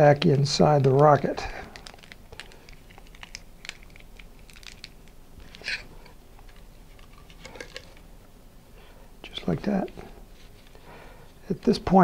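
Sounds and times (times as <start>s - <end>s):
mylar streamer crinkling: 0.8s - 8.2s, 8.8s - 11.8s.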